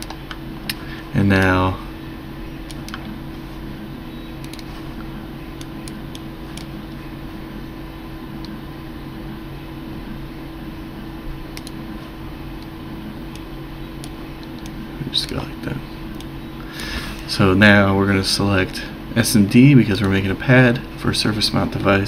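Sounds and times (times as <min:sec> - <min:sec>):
steady low hum: 0:00.0 - 0:22.0
computer mouse clicks: 0:02.7 - 0:03.1, 0:04.4 - 0:04.7, 0:05.6 - 0:06.7, 0:11.6 - 0:11.8, 0:13.3 - 0:15.4.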